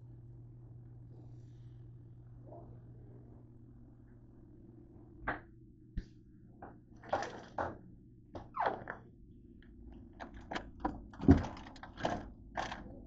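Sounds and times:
items knocking in refrigerator: 10.3 - 12.9.

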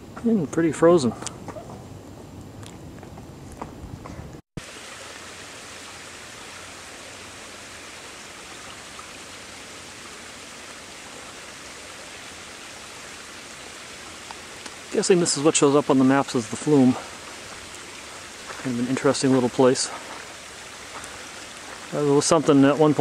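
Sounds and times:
low wind rumble: 0.0 - 4.4
brook running over rocks: 4.6 - 23.0.

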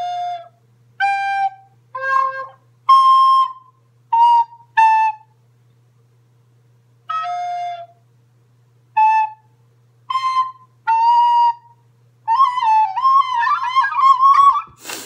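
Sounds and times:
recorder notes: 0.0 - 5.4.

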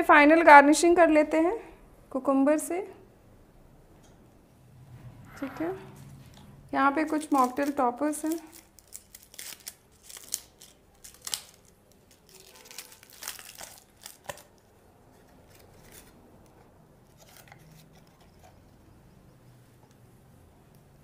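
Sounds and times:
paper crinkling: 7.0 - 18.6.

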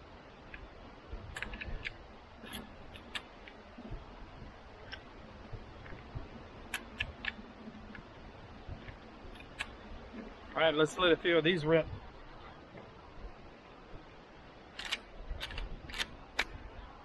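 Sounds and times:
rifle loading metallic clicks: 1.4 - 3.6, 9.4 - 9.7, 14.8 - 16.6.

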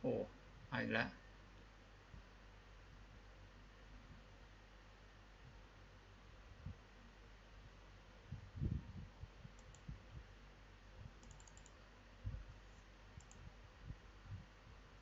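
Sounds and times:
soft low thumps: 8.2 - 10.3, 12.2 - 12.6, 13.2 - 14.9
computer mouse clicks: 9.6 - 9.9, 11.2 - 11.8, 13.2 - 13.5.

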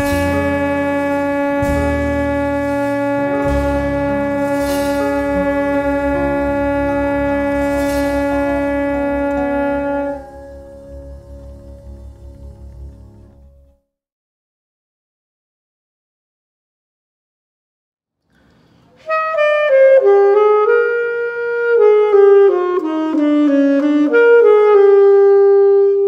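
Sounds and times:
alto saxophone holding a note: 0.0 - 13.1, 19.0 - 26.0
accompaniment with pulsing bass: 0.0 - 13.7.

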